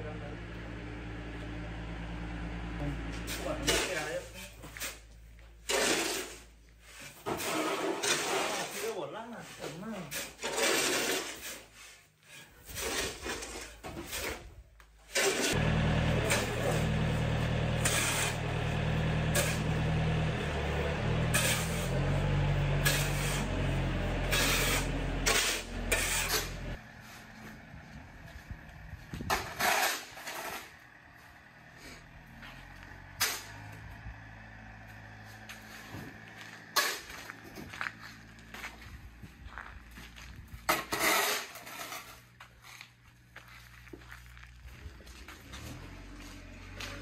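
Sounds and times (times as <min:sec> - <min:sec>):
tractor engine running: 0:00.0 - 0:04.1, 0:15.3 - 0:47.0
shovels scraping gravel: 0:03.1 - 0:27.3, 0:29.2 - 0:31.0, 0:31.8 - 0:47.0.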